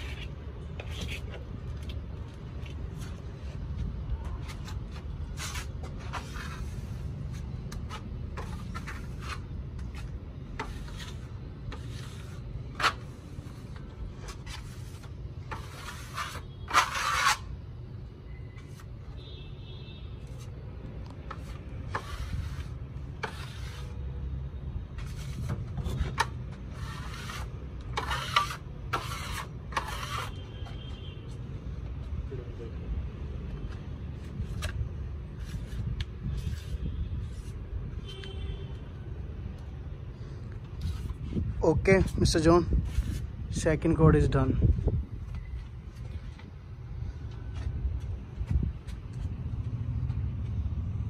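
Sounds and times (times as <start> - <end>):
putty blade scraping wall: 5.4 - 17.5, 21.3 - 24.1, 25.0 - 30.4.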